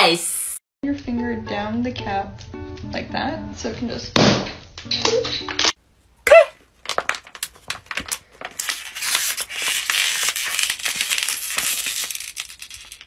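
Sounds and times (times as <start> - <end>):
plastic bottle crackling: 6.7 - 13.0.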